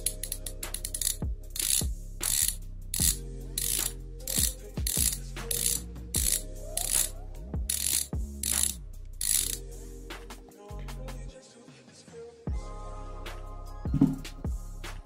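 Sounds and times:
bicycle hub pawls clicking: 0:00.0 - 0:09.6
background music with deep bass: 0:00.0 - 0:15.0.

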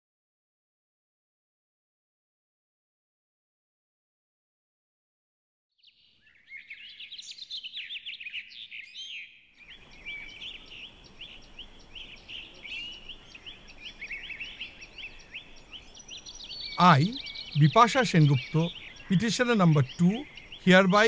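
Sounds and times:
small birds chirping: 0:05.8 - 0:21.0.

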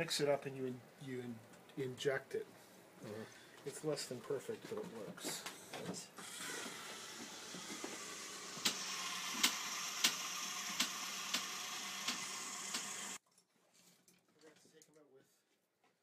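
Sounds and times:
steady hiss and hum: 0:00.0 - 0:06.2
screwdriver clicking: 0:08.6 - 0:13.0.

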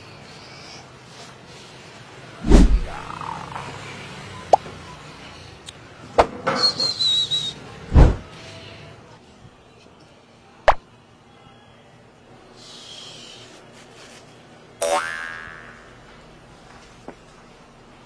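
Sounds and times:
heavy thump: 0:02.5 - 0:03.0, 0:07.9 - 0:08.2.

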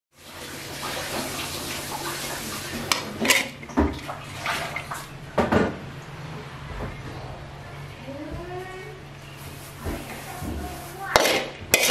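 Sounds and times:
running water: 0:00.2 - 0:05.2
dishes and utensils clinking: 0:02.8 - 0:04.0, 0:09.9 - 0:11.9.

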